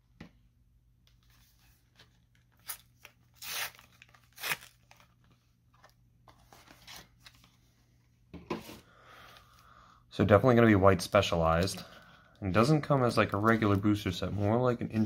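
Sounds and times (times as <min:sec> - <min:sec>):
foil wrapper tearing: 0:02.6 - 0:05.1.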